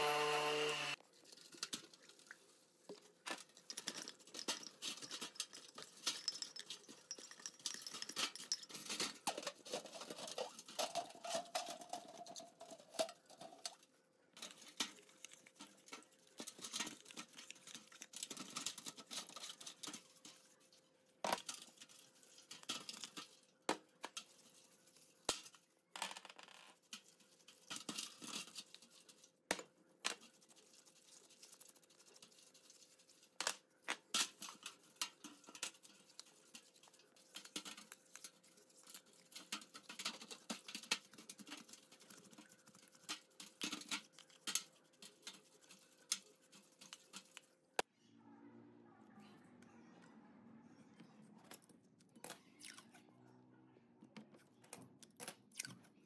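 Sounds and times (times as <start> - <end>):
brush scrubbing metal: 30.1 - 33.4, 34.1 - 47.5.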